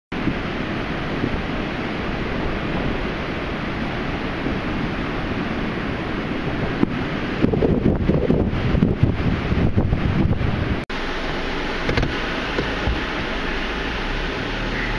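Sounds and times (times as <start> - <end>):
wind buffeting microphone: 0.1 - 10.8
surf breaking on beach: 0.1 - 14.9.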